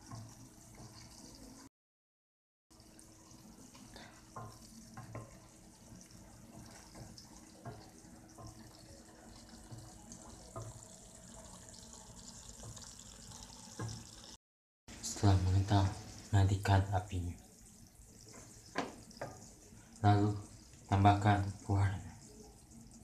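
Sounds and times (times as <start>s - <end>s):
wooden spatula stirring: 0.0s - 1.6s, 3.0s - 11.5s, 17.5s - 21.5s
syrup boiling in a saucepan: 0.0s - 1.7s, 2.7s - 23.0s.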